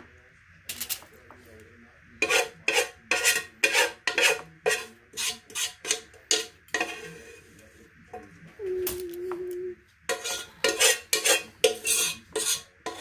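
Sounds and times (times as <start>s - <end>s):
spoon scraping a pot: 2.2s - 7.8s, 10.0s - 13.0s.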